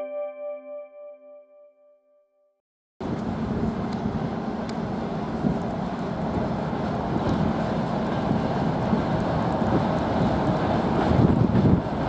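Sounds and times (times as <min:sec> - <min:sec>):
diesel locomotive engine drone: 0:03.0 - 0:12.0.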